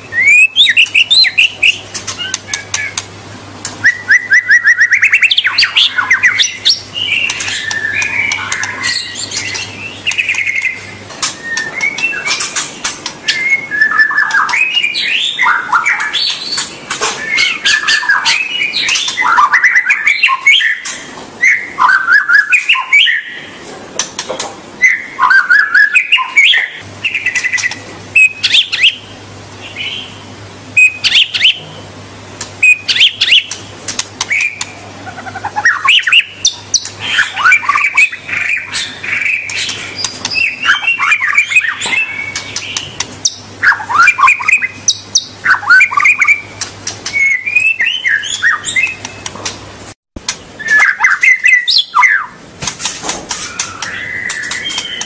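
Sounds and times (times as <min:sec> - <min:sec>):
bird singing whistled phrases: 0:00.0 - 0:03.0, 0:03.8 - 0:12.6, 0:13.2 - 0:23.5, 0:24.8 - 0:29.0, 0:30.8 - 0:31.7, 0:32.6 - 0:33.6, 0:34.3 - 0:49.3, 0:50.6 - 0:52.4, 0:53.4 - 0:55.0
sharp clicks: 0:01.9 - 0:03.8, 0:33.5 - 0:34.8.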